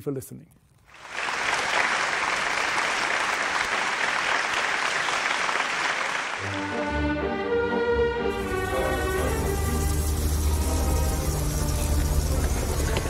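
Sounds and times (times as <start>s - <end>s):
audience applauding: 0.9s - 6.8s, 8.4s - 13.0s
music with sustained layered tones: 6.4s - 13.0s.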